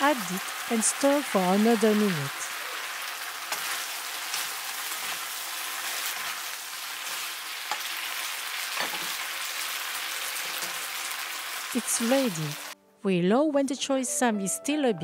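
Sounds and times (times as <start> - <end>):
food sizzling in a pan: 0.0 - 12.8
spatula scraping pan: 3.4 - 9.3.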